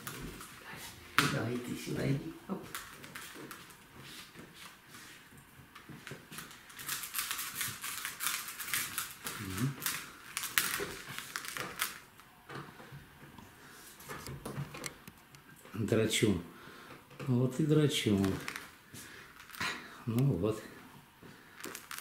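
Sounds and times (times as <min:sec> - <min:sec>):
claws clicking and scratching: 0:02.7 - 0:03.8, 0:06.3 - 0:12.1, 0:18.1 - 0:19.7, 0:21.6 - 0:22.0.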